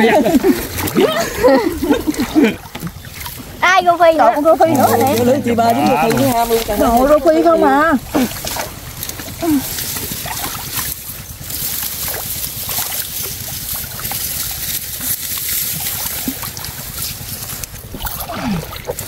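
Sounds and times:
water sloshing and trickling: 0:00.0 - 0:19.0
wind rumbling on microphone: 0:04.4 - 0:15.0.

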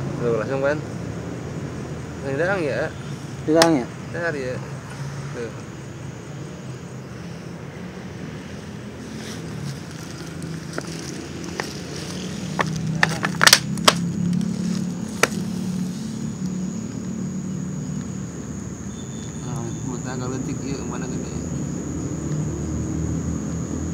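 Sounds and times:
sharp clicks and crackles: 0:10.0 - 0:15.5
faint high whine: 0:14.2 - 0:23.9.

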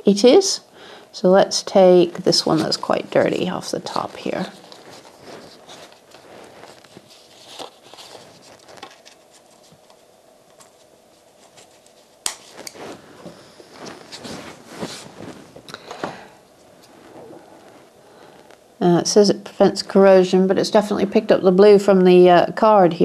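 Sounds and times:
scissors snipping: 0:12.2 - 0:12.8.

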